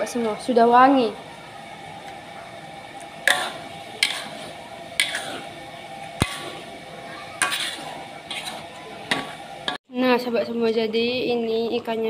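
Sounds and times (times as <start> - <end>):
sharp clicks from simmering wok: 6.2 - 6.6.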